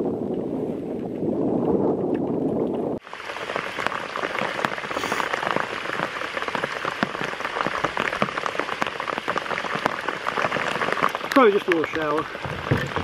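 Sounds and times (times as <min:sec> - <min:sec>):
rain falling on lake water: 0:02.6 - 0:13.0.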